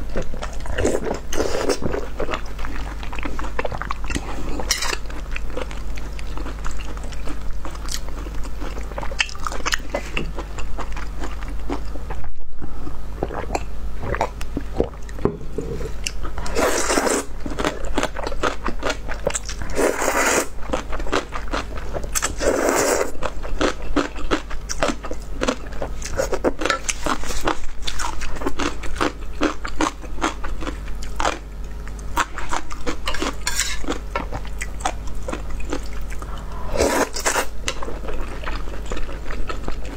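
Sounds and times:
steady low hum: 0.0 - 39.9
slurping noodles: 15.6 - 17.3, 19.7 - 20.5, 22.3 - 23.1, 36.3 - 37.5.

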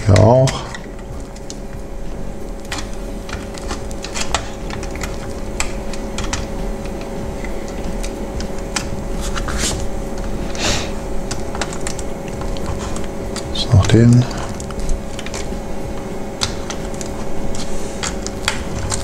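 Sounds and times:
tool clicking and scraping metal tabs: 0.0 - 1.6, 2.7 - 9.5.

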